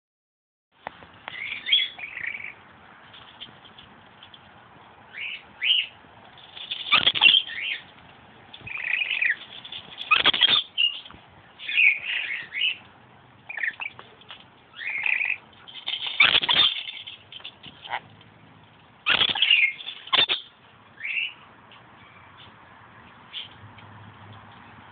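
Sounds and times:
lorikeet chattering: 0:01.3 - 0:02.6, 0:06.6 - 0:07.9, 0:08.7 - 0:11.0, 0:11.6 - 0:12.8, 0:13.5 - 0:14.0, 0:14.7 - 0:18.1, 0:19.1 - 0:21.4.

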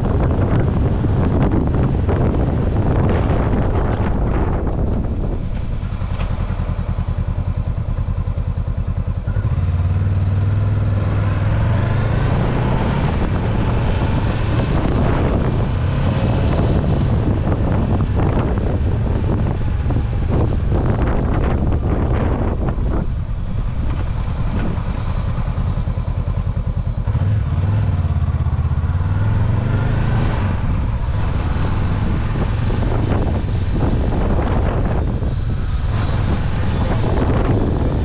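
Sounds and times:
motorcycle engine accelerating: 0:00.0 - 0:38.0
wind noise: 0:00.0 - 0:38.0.

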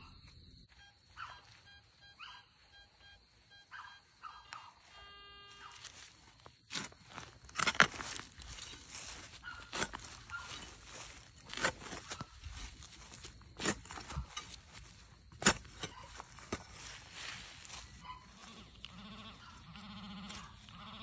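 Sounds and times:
footsteps through grass and dry leaves: 0:04.8 - 0:21.0.

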